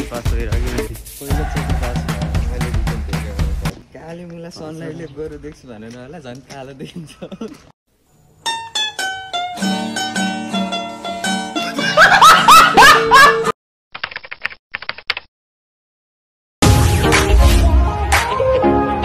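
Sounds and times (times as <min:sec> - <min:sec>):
plucked string music: 0:08.4 - 0:12.0.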